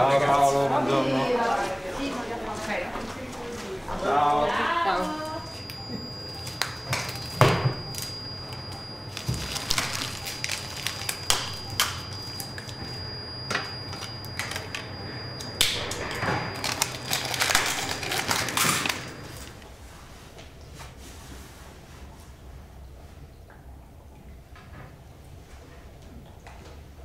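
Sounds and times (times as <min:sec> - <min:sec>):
faint high whine: 0:03.9 - 0:20.3
glass and plastic items clinking: 0:09.1 - 0:11.2.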